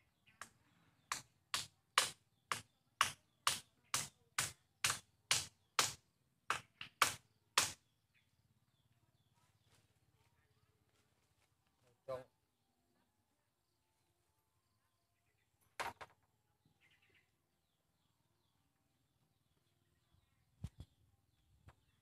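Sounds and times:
tool knocking on bamboo: 0.4s - 7.8s.

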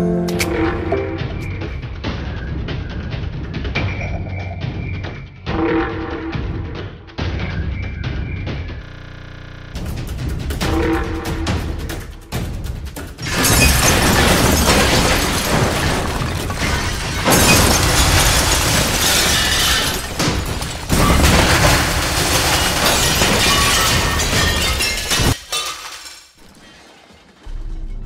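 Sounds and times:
shelving collapsing and crashing: 13.2s - 27.8s.

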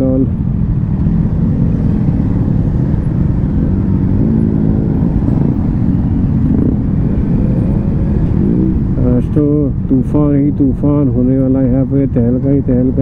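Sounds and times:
motorcycle engine running: 0.0s - 12.9s.

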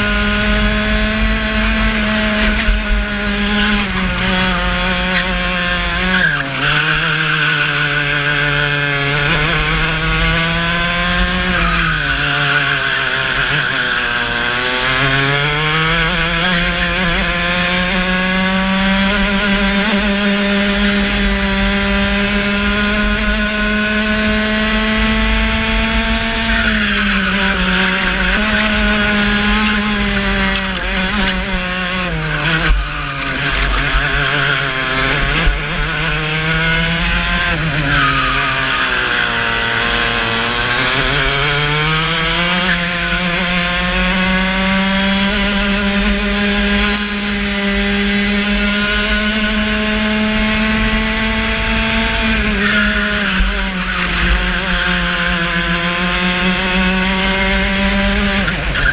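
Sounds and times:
kart engine revving: 0.0s - 58.9s.

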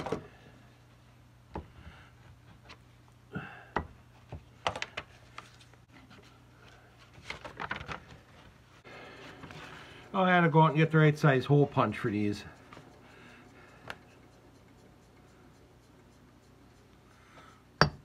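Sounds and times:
paper rustling: 7.0s - 8.6s
steady low hum: 8.5s - 18.0s.

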